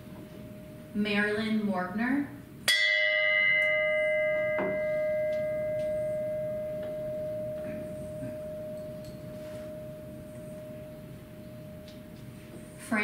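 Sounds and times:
bell ringing: 2.7s - 12.2s.

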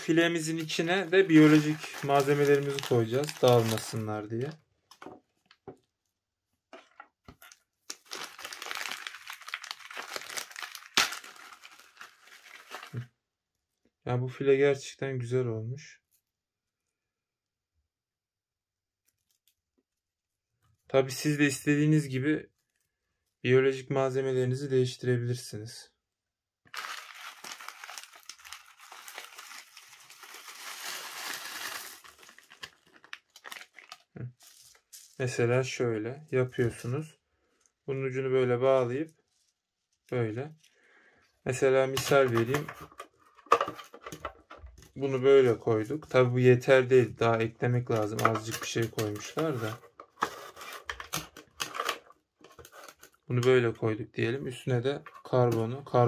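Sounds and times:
plastic packaging crinkling: 0.0s - 5.6s, 7.4s - 13.0s, 26.7s - 35.2s, 41.9s - 44.6s.

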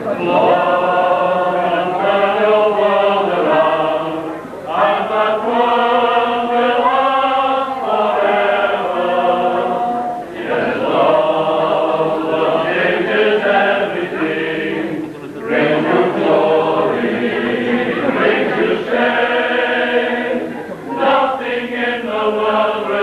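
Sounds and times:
male voice choir singing: 0.0s - 23.0s.

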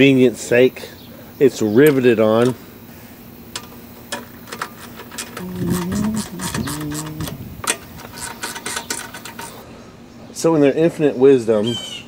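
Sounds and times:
hand tool clicking on metal: 3.6s - 9.6s
wordless vocal sounds: 5.4s - 7.6s.

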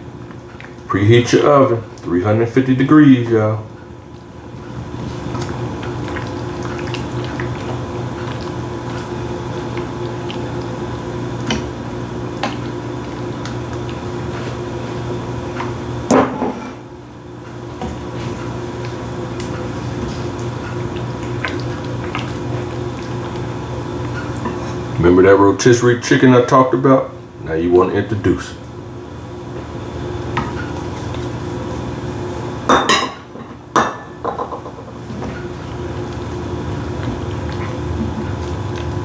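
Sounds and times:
steady low hum: 0.0s - 39.0s
cheese sauce bubbling in a pan: 3.8s - 16.1s, 17.5s - 25.0s, 35.0s - 39.0s.

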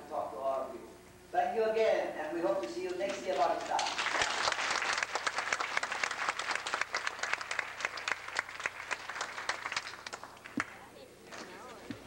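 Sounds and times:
audience applauding: 3.3s - 10.8s.

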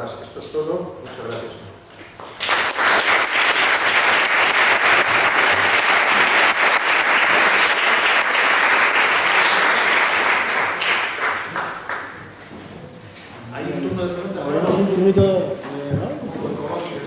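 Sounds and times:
audience applauding: 2.2s - 12.4s.

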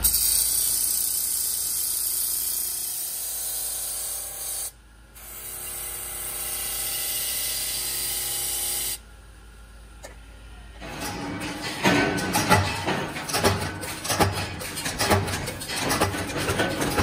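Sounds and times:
abrasive wheel hissing on metal: 0.0s - 4.7s.

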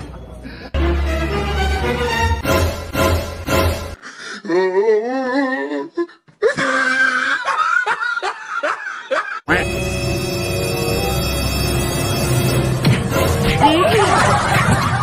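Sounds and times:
background music: 0.0s - 4.0s, 9.5s - 15.0s
person laughing: 6.4s - 9.6s.

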